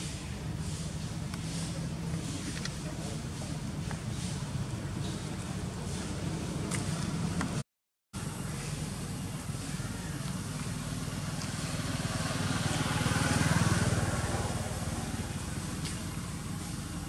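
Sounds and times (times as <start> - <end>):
passing vehicle engine hum: 8.2 - 17.0.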